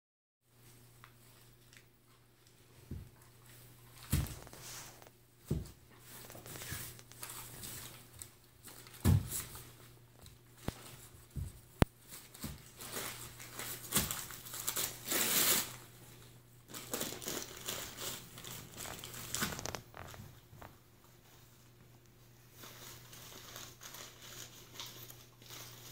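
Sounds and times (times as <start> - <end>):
paper crinkling and tearing: 4.0 - 5.1, 6.0 - 9.8, 12.0 - 15.9, 16.7 - 20.2, 22.5 - 25.9.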